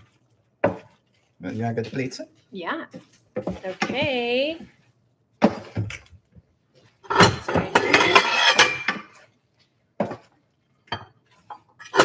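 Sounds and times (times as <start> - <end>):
ceramic plates clattering: 7.0 - 9.2
utensil scraping a pan: 7.0 - 9.3.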